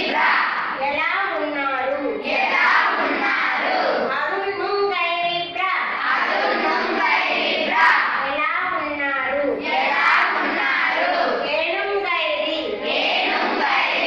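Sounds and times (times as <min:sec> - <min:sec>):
girls reciting in chorus: 0:00.0 - 0:14.0.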